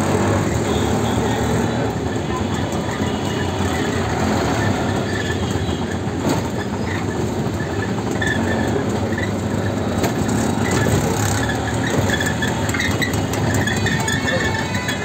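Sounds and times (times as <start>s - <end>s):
auto-rickshaw engine running: 0.0s - 15.0s.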